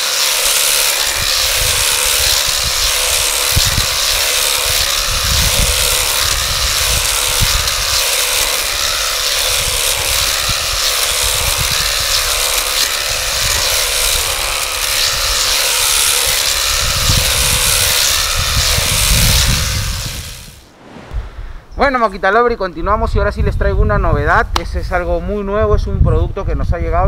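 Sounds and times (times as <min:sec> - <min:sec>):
hedge trimmer cutting hedge: 0:00.0 - 0:20.7
low rumbles: 0:16.6 - 0:23.7.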